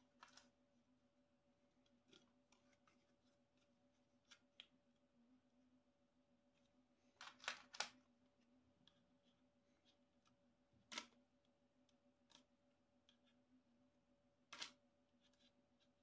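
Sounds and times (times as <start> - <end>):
faint clicks of small parts: 0.0 - 0.6, 1.8 - 5.1, 6.5 - 13.5, 14.5 - 16.0
faint steady hum: 0.0 - 16.0.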